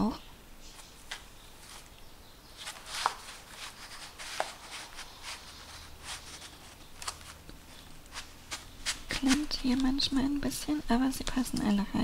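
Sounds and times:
paper rustling and scraping: 0.7 - 2.0, 2.6 - 10.2.

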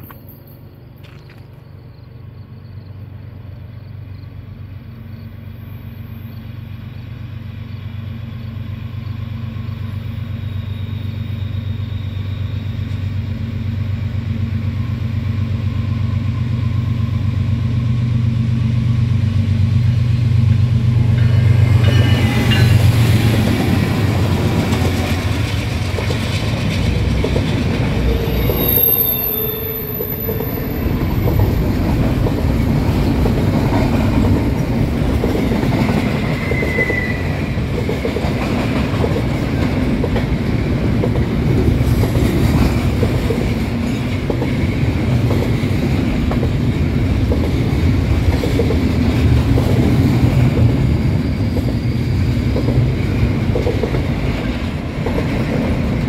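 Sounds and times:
locomotive engine drone: 0.0 - 56.0
train wheel and rail noise: 0.0 - 56.0
high wheel squeal: 21.7 - 24.4, 27.9 - 31.6, 36.1 - 37.6.

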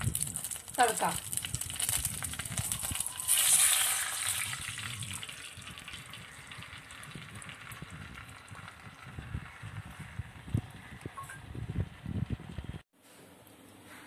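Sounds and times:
oil sizzling: 0.0 - 9.5.

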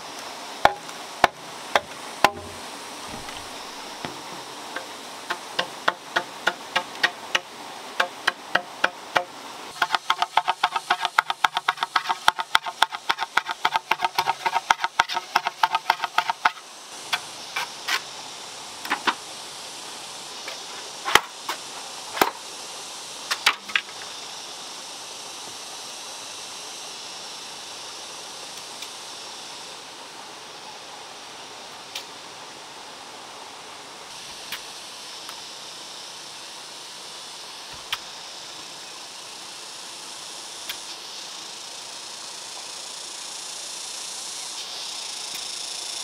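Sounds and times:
running water rushing: 0.0 - 44.4
machete chopping bamboo: 0.6 - 4.2, 5.3 - 17.3.

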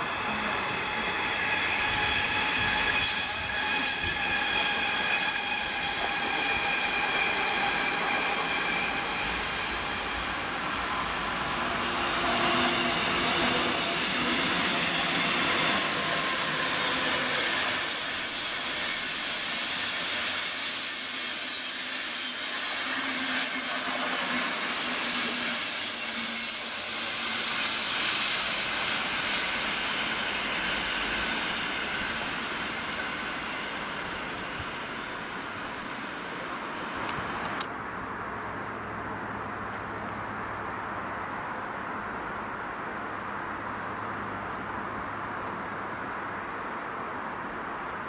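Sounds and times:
high-pitched wheel squeal: 0.0 - 33.8
train wheels rattling on track: 0.0 - 37.8.

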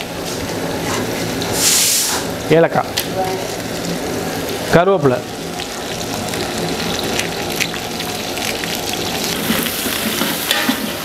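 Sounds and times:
onions sizzling in hot oil: 0.0 - 11.0
ladle stirring pot: 9.2 - 11.0.

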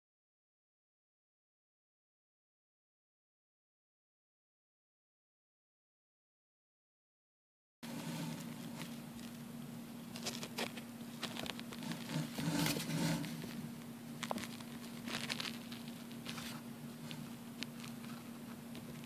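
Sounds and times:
steady low hum: 7.8 - 19.0
dry leaf litter crackling: 14.2 - 16.6.

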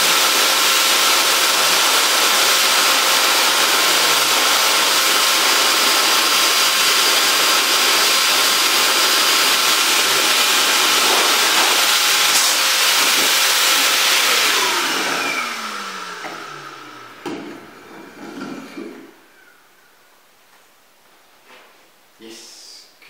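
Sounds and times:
motor winding down whine: 0.0 - 18.2
dog dryer blowing air: 0.0 - 19.1.

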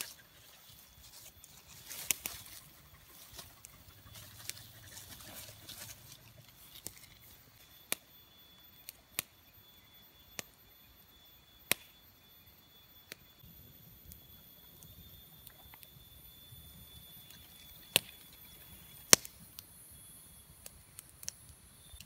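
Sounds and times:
rustling in grass: 0.0 - 7.4
faint steady high tone: 0.0 - 22.0.

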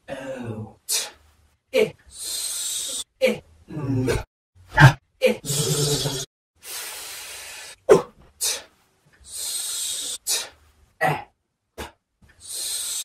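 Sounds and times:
person hissing breaths: 2.1 - 3.1, 5.6 - 7.8, 8.4 - 10.6, 12.4 - 13.0
sharp vocal bursts: 4.7 - 6.3.

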